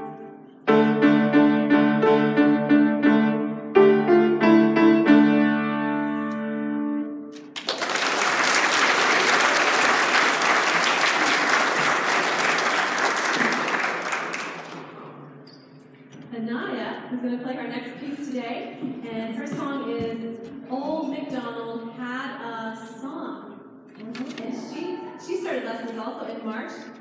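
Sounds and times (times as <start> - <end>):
solo grand piano: 0.0 - 7.5
audience applauding: 7.4 - 15.0.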